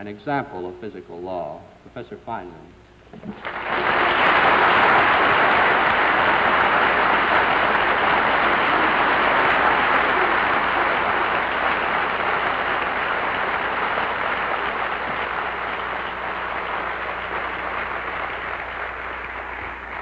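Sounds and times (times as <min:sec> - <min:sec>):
audience applauding: 0:03.2 - 0:20.0.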